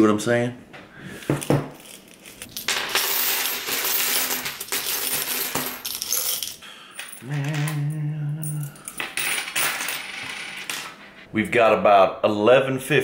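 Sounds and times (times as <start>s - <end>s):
coins pouring onto wooden table: 1.4s - 7.8s, 8.9s - 11.0s
coins sliding and clinking: 1.4s - 7.8s, 8.8s - 11.3s.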